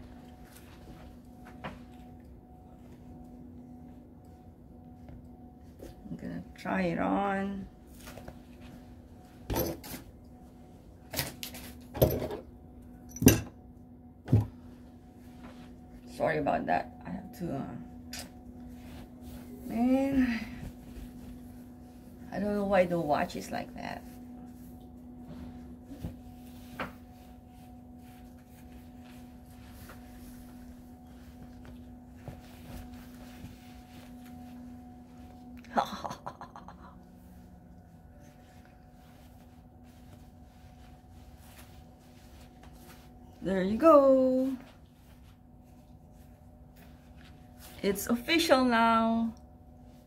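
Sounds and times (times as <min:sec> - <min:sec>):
faint steady hum: 0:00.0 - 0:50.0
fabric rustling and swishing: 0:25.4 - 0:35.4, 0:38.4 - 0:48.0.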